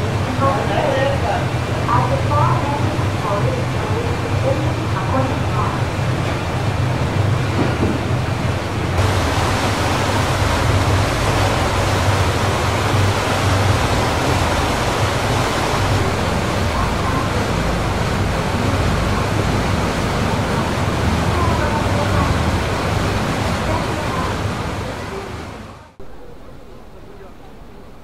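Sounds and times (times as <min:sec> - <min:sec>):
boat engine drone: 0:00.0 - 0:28.0
churning water rushing: 0:00.0 - 0:28.0.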